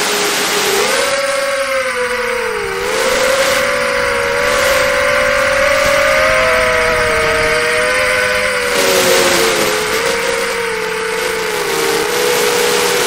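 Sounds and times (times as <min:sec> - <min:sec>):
drone motors whining: 0:00.0 - 0:13.0
rush of air: 0:01.8 - 0:11.8.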